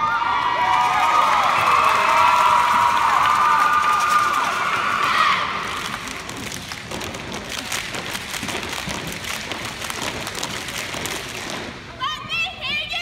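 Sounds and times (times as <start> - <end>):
crowd cheering: 0.0 - 6.3
hands clapping and slapping: 5.7 - 11.8.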